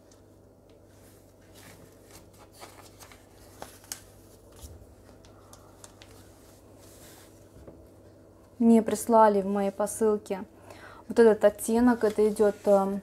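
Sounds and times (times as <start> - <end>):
paper pages flicking: 2.1 - 6.3.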